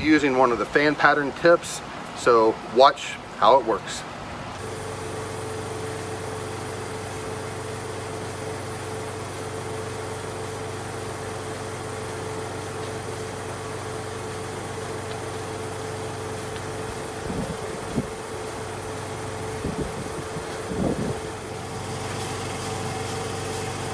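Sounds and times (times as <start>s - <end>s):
air compressor humming: 4.3s - 23.9s.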